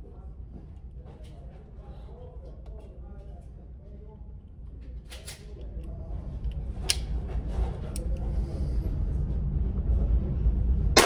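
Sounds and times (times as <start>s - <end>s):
steady low rumble: 5.6s - 11.0s.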